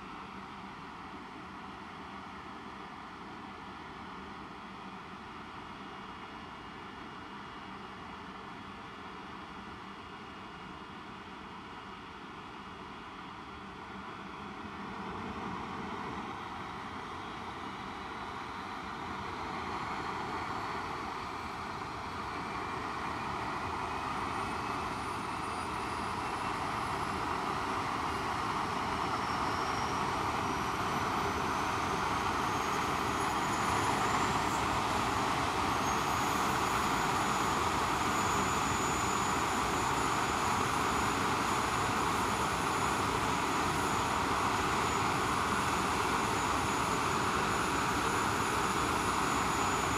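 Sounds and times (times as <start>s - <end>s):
jet engines spooling up: 13.8s - 49.9s.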